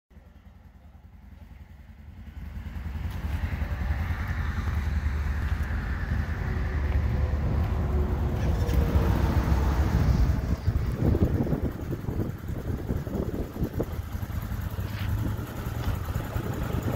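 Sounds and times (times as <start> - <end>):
wind buffeting microphone: 4.1 - 16.9.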